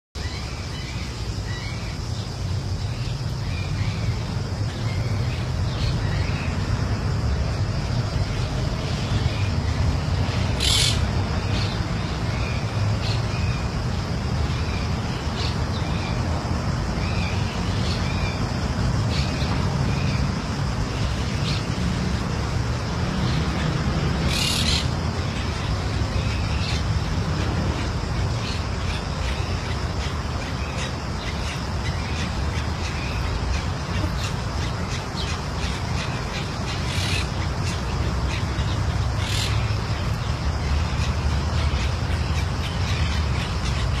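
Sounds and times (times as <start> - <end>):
parakeets squawking: 8.3 - 13.5, 23.3 - 44.0.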